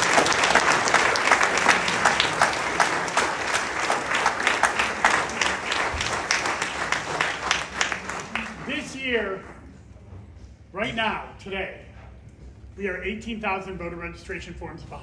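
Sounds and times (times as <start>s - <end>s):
audience applause: 0.0s - 9.7s.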